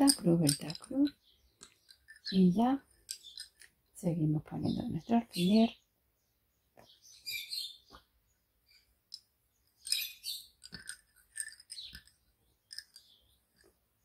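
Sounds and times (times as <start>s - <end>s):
wooden bobbins clicking: 0.0s - 3.8s, 9.1s - 13.8s.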